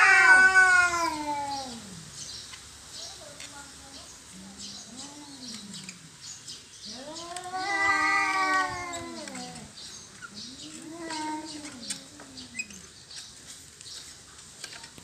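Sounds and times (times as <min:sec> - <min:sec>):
cat yowling: 0:00.0 - 0:02.0, 0:06.9 - 0:09.7, 0:10.4 - 0:12.4.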